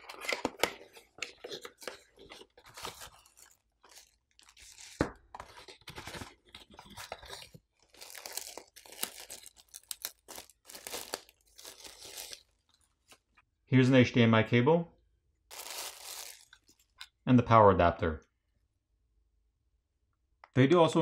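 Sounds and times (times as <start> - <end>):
plastic bag crinkling: 5.6 - 13.2, 15.5 - 17.0.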